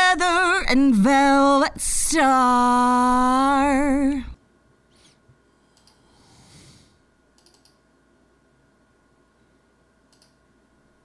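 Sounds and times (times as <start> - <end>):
faint computer mouse clicks: 7.4 - 7.8, 10.1 - 10.4.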